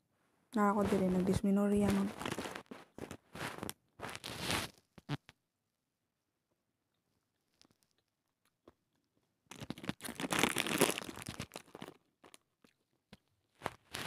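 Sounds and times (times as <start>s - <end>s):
plastic bag crinkling: 1.8s - 4.7s, 9.5s - 12.4s.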